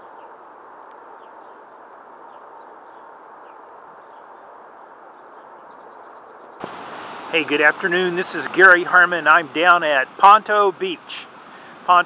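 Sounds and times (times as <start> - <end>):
rushing background noise: 6.0 - 12.0.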